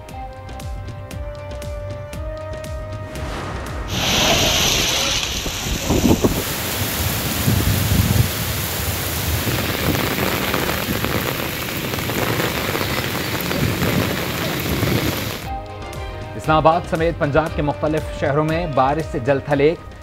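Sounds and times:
low rumble: 2.9s - 15.4s
heavy rain pouring: 3.2s - 15.5s.

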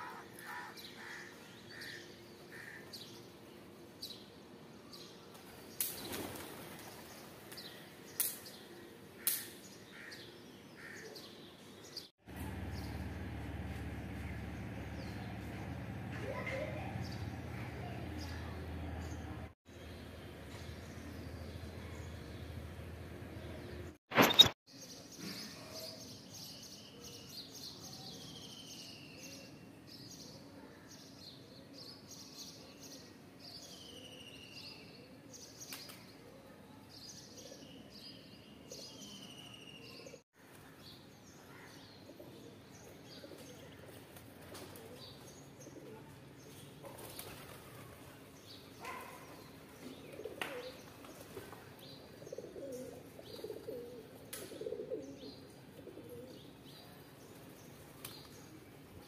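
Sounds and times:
pigeon wing flaps: 5.8s - 7.1s, 46.9s - 48.0s
small birds chirping: 44.8s - 59.0s
pigeons cooing: 49.9s - 56.5s.

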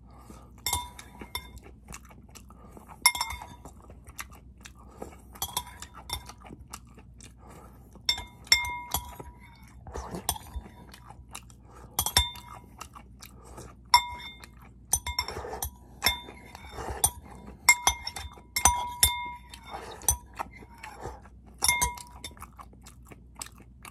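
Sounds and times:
chewing sweet corn: 0.0s - 23.9s
spoon clinking on ceramic bowl: 0.6s - 1.6s, 3.1s - 3.6s, 5.4s - 6.3s, 8.1s - 9.7s, 12.0s - 12.5s, 14.0s - 20.3s, 21.6s - 22.4s.

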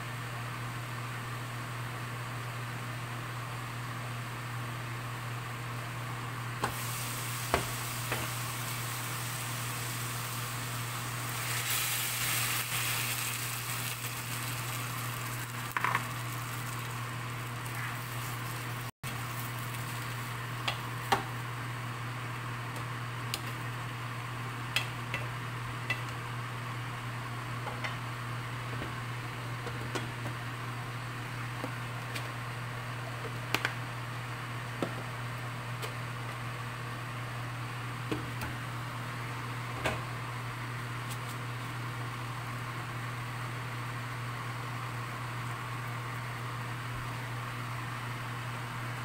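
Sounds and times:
food sizzling in a pan: 6.7s - 20.6s.

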